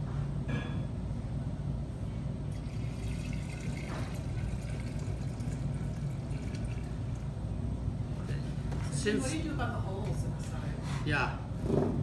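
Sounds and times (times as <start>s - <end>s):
low room hum: 0.0s - 12.0s
liquid pouring into a vase: 2.5s - 7.6s.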